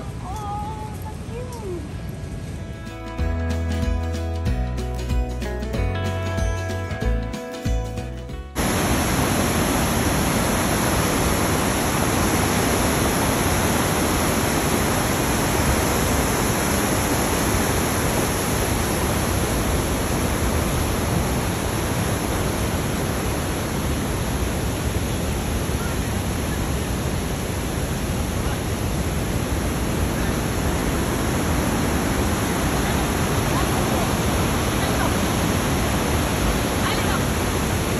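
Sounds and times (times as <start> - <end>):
water rushing over cascade: 8.6 - 37.9.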